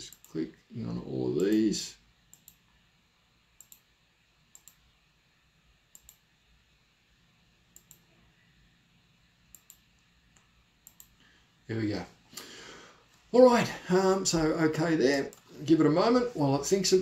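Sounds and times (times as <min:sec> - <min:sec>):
low background hiss: 0:00.0 - 0:17.0
computer mouse clicks: 0:00.1 - 0:00.4, 0:01.4 - 0:01.7, 0:02.3 - 0:02.7, 0:03.6 - 0:03.9, 0:04.5 - 0:04.9, 0:05.9 - 0:06.3, 0:07.7 - 0:08.2, 0:09.5 - 0:11.2.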